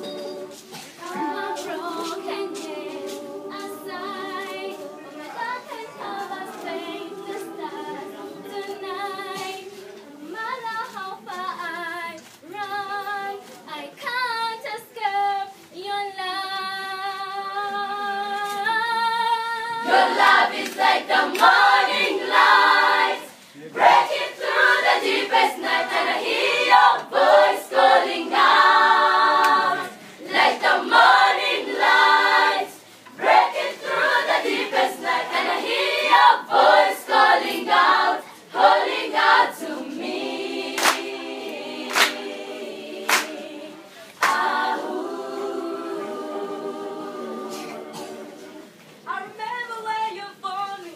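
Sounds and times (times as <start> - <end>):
children's choir singing: 0.0 - 10.3, 19.7 - 48.8.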